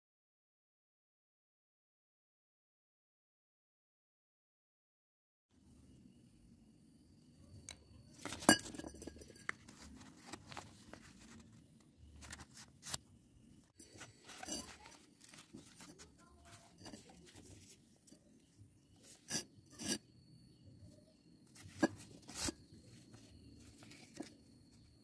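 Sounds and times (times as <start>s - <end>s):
paper rustling and crinkling: 8.2s - 13.1s, 13.8s - 17.8s, 21.6s - 24.4s.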